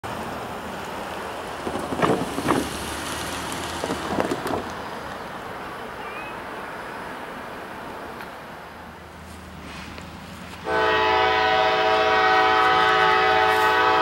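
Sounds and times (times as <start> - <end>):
gusty rustles: 1.4 - 5.3
wind noise on microphone: 1.6 - 2.8, 3.7 - 4.8.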